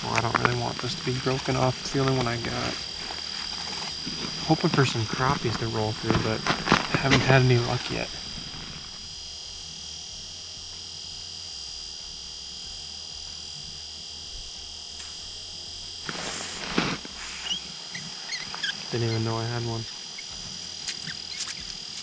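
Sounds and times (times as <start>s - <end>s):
high-pitched electronic whine: 0.0s - 22.0s
low hum: 0.0s - 22.0s
rustle and scuffle: 16.1s - 18.8s.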